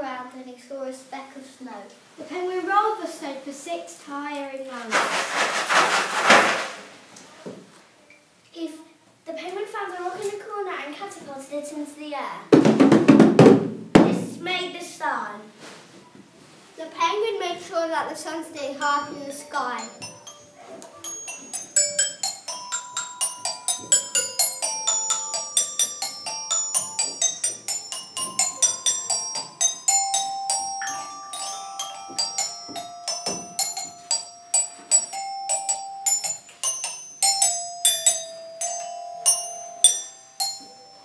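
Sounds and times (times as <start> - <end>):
tuned mallet percussion melody: 18.8 - 41.0.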